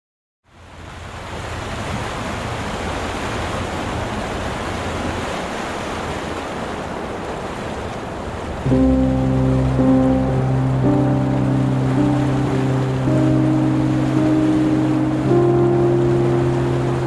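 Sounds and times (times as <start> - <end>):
wind: 0.4 - 17.0
waves washing against shore: 0.8 - 17.0
music: 8.7 - 17.0.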